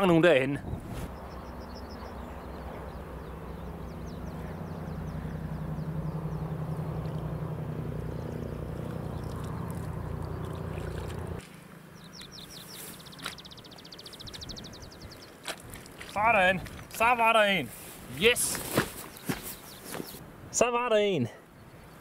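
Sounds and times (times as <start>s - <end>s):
low engine drone: 1.0s - 15.4s.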